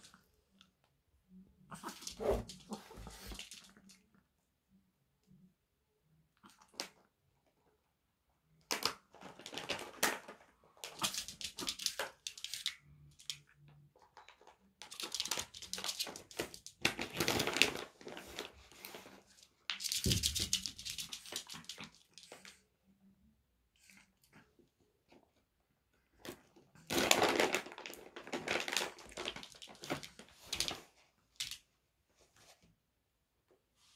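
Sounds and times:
packaging rustling and crinkling: 26.9s - 30.8s.

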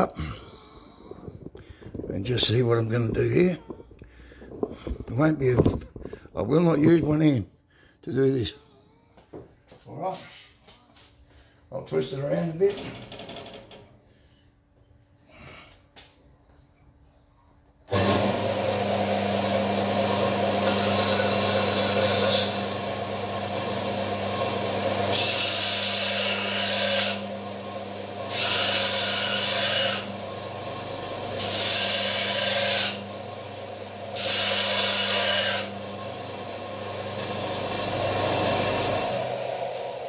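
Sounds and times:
belt grinder motor humming: 17.9s - 40.0s
steel grinding on belt: 20.2s - 22.8s, 28.3s - 30.1s, 34.2s - 36.4s.

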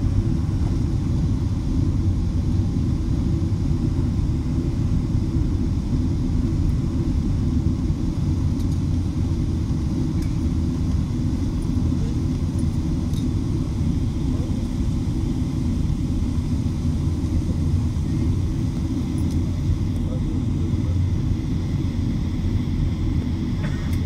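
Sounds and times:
airliner engine noise: 0.0s - 24.0s.

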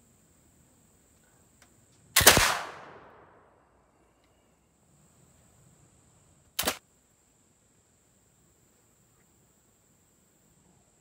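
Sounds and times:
faint click: 1.1s - 2.0s, 4.0s - 4.4s
rifle shot: 2.2s - 3.6s, 6.6s - 6.8s.

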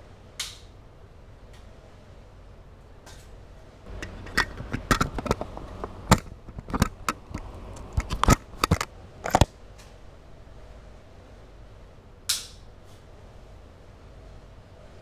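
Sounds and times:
camera handling clicks and knocks: 4.0s - 9.5s.

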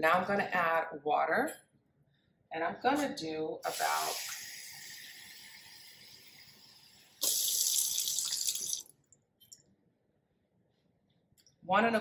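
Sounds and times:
faucet water running: 3.7s - 8.9s.

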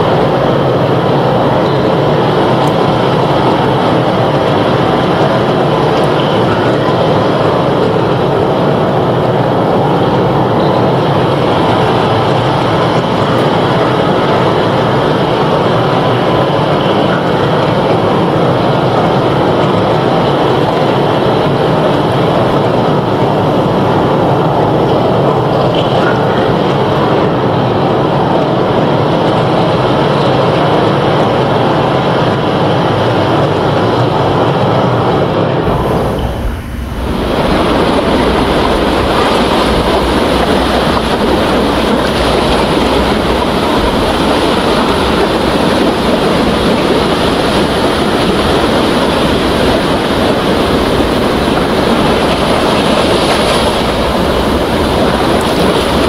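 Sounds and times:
waves breaking roar: 0.0s - 56.0s.

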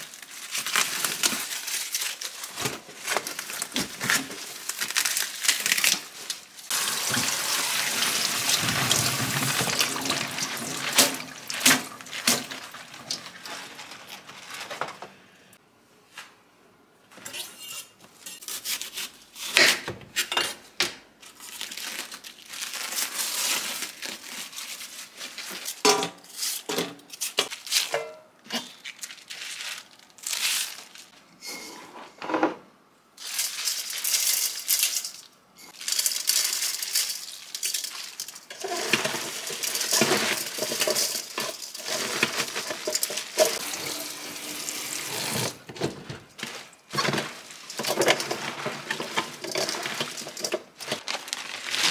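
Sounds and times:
cabbage crunching and rustling: 0.0s - 14.6s, 21.3s - 27.9s, 28.6s - 31.2s, 35.7s - 51.9s.

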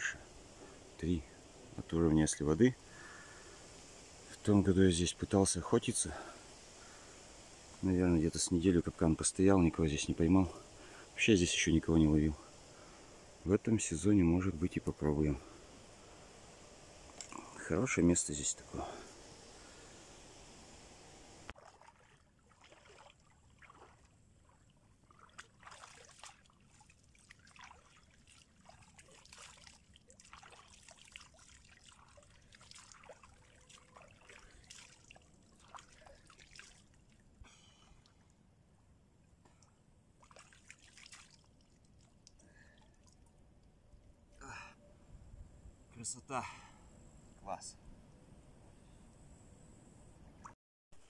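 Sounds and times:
river water splashing: 21.5s - 38.4s, 39.6s - 43.3s.

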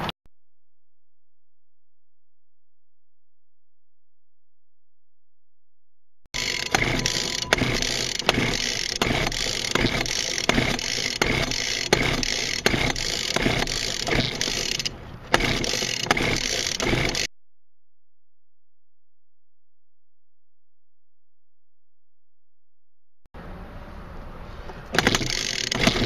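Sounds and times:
small two-stroke engine running roughly: 6.4s - 17.3s, 25.0s - 26.0s.

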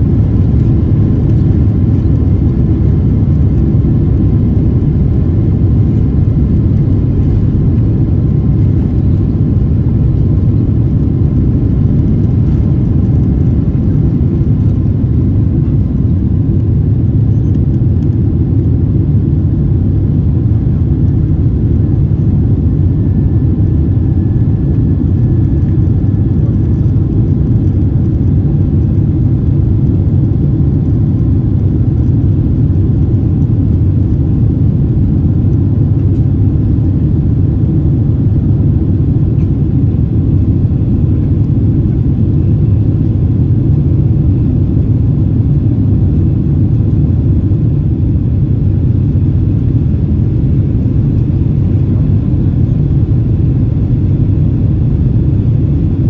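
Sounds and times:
jet engines rumbling: 0.0s - 56.0s.

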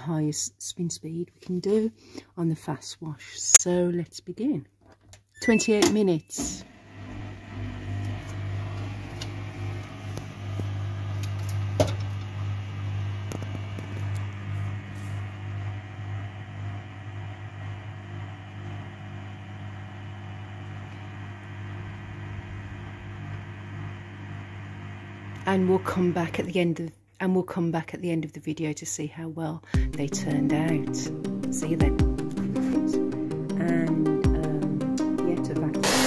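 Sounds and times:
washing machine hum: 5.4s - 26.6s.

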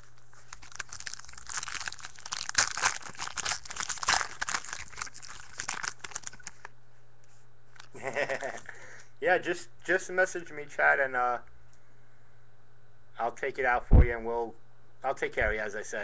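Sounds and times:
foil wrapper tearing and crinkling: 0.0s - 6.7s.

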